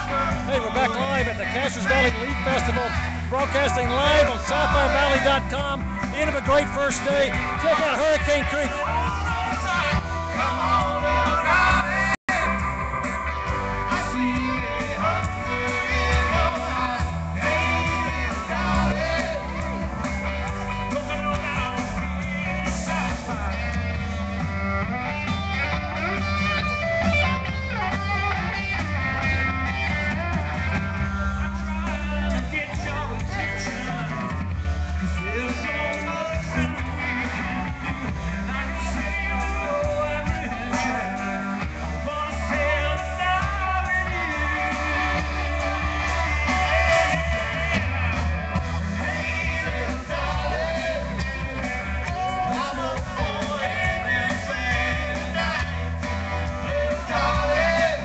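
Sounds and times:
guitar with bent notes: 0:00.0 - 0:58.0
live band music: 0:00.0 - 0:58.0
steady bass line: 0:00.0 - 0:58.0.

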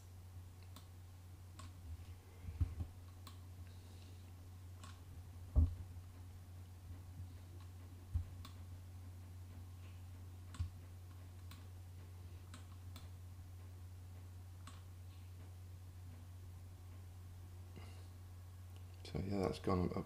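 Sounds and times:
low steady hum: 0:00.0 - 0:20.0
soft low knocks: 0:05.2 - 0:12.2.

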